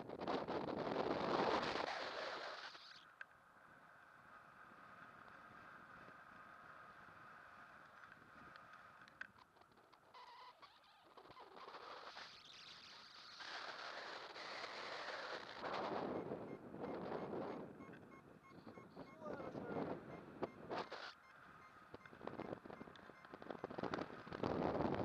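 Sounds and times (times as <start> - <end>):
wind rushing over microphone: 0.0 - 2.4, 13.7 - 25.0
faint high steady tone: 16.0 - 22.1.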